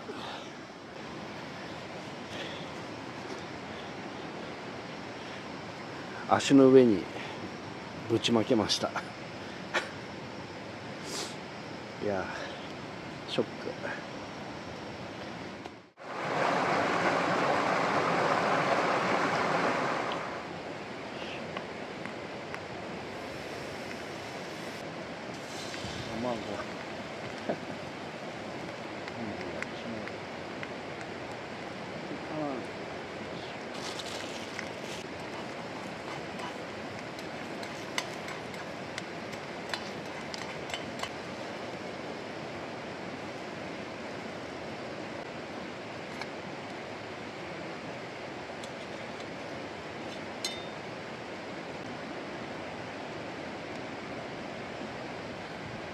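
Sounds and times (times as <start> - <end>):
stream water rushing: 16.0 - 29.0
stream rushing: 16.0 - 29.5, 30.1 - 55.9
light clinks and taps: 35.3 - 41.2.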